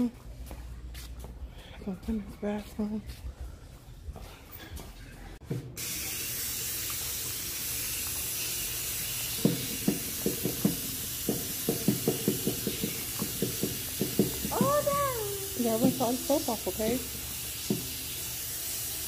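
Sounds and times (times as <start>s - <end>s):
faucet water running into sink: 5.8s - 19.0s.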